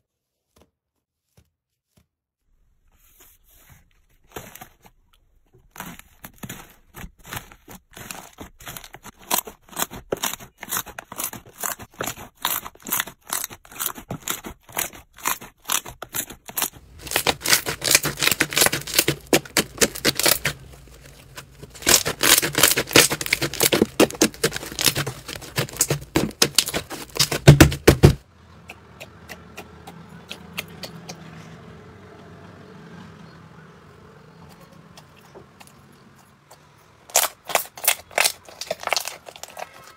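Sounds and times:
slime crackling and popping: 5.8s - 28.2s, 37.1s - 39.9s
soft squish of slime: 34.5s - 39.9s
labels pulled from slime crackling: 37.1s - 39.8s.

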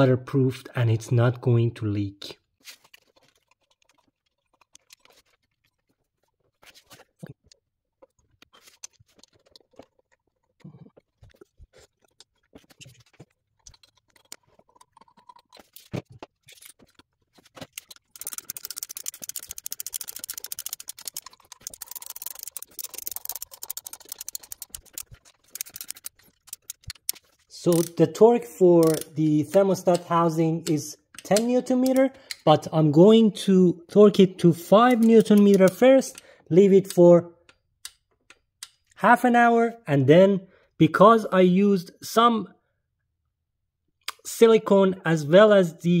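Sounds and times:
tools and parts clicking: 12.7s - 32.6s, 34.6s - 39.0s
ratchet clicking rapidly: 17.8s - 27.1s, 27.7s - 28.0s, 28.8s - 29.1s.

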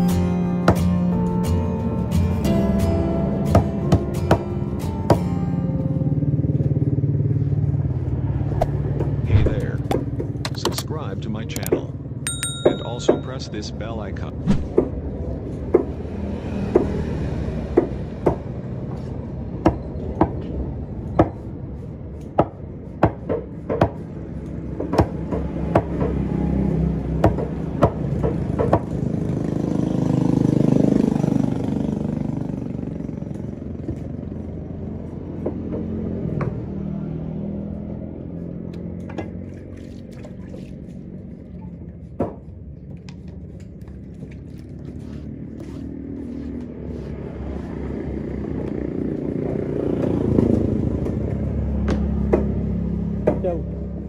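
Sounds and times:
engine passing: 0.0s - 22.9s, 24.0s - 42.2s, 43.1s - 54.0s
steady engine hum: 0.0s - 54.0s.

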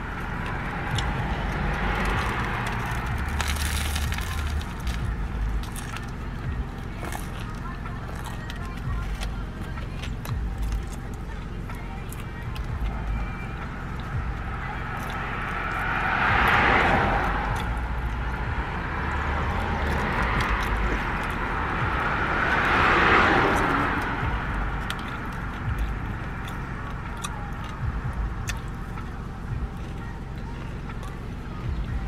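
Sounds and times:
car interior rumble: 0.0s - 32.0s
vehicles passing: 0.0s - 32.0s.

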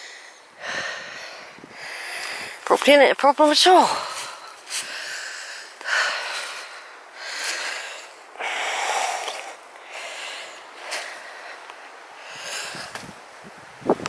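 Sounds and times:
person breathing heavily: 0.0s - 2.7s, 3.8s - 13.1s.

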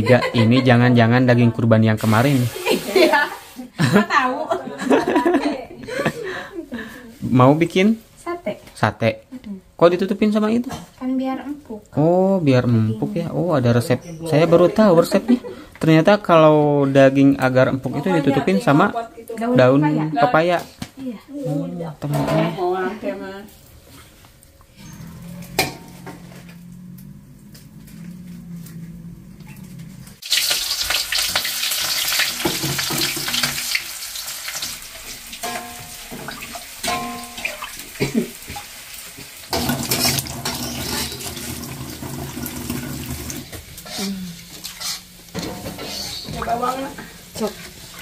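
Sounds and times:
food sizzling in a wok: 2.0s - 3.8s, 30.2s - 48.0s
low steady hum: 24.6s - 30.2s
spatula scraping a wok: 39.5s - 42.1s, 43.4s - 48.0s.

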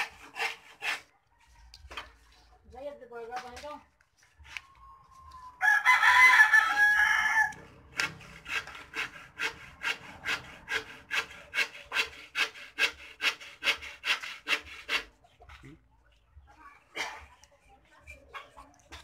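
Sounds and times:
rooster crowing: 4.7s - 7.7s.

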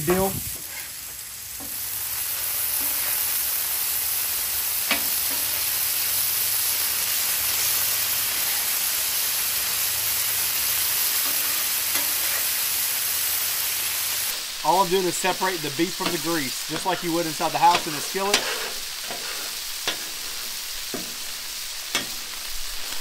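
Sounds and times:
meat sizzling on a griddle: 0.0s - 23.0s
metal spatula scraping: 11.2s - 12.6s, 15.9s - 22.5s.

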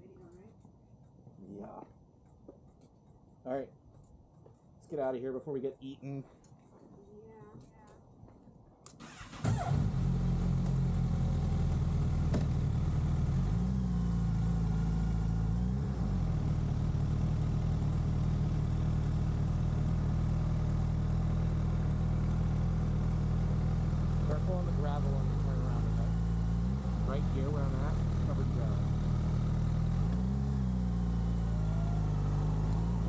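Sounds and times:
motorcycle engine idling: 10.4s - 33.0s.

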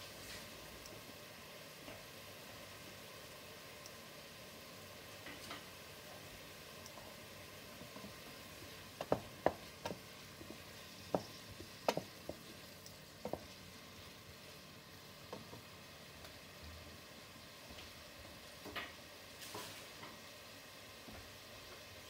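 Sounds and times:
onions sizzling in oil: 0.0s - 22.0s
wooden spoon knocking against pan: 9.0s - 12.6s, 13.2s - 13.6s.

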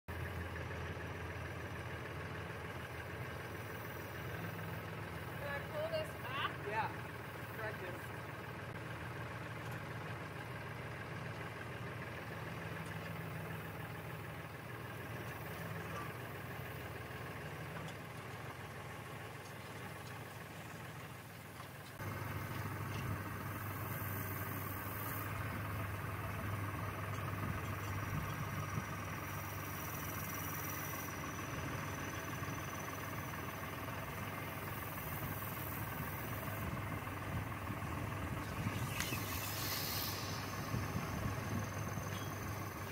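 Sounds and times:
diesel tractor engine idling: 0.1s - 42.9s.

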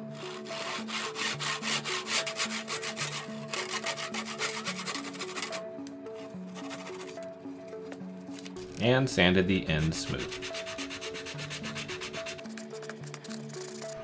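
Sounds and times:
hand saw cutting wood: 0.1s - 5.6s, 10.2s - 12.5s.

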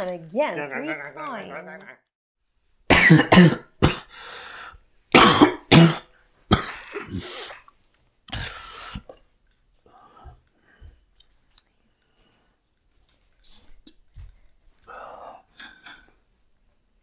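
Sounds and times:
man coughing hard: 2.9s - 4.1s, 5.1s - 7.3s
short gasping breaths: 4.1s - 4.8s.

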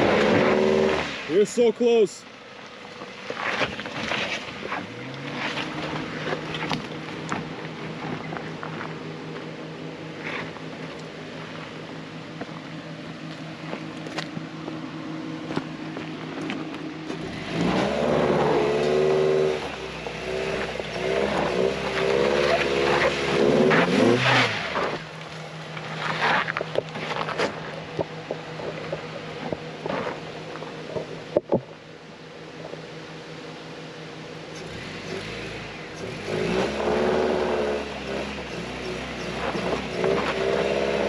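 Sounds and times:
off-road vehicle engine revving: 0.0s - 41.0s
knocks and scrapes on rock: 25.8s - 30.3s.

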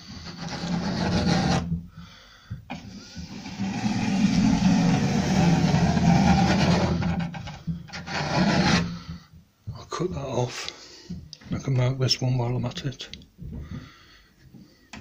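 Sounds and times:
pencil scratching on board: 0.2s - 1.7s, 3.5s - 8.9s.

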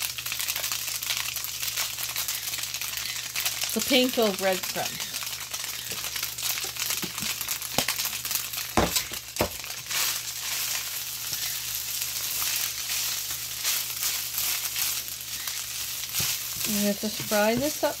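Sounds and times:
food sizzling in butter: 0.0s - 18.0s
spatula scraping a pan: 9.9s - 18.0s.

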